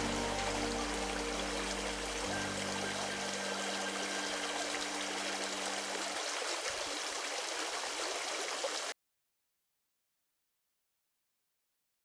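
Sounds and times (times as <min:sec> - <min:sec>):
low held tones: 0:00.0 - 0:06.0
brook water rushing and trickling: 0:00.0 - 0:09.0.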